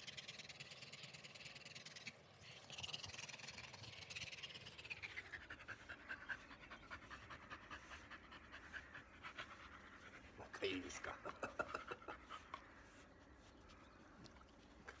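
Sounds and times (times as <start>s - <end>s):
dog panting: 4.8s - 13.5s.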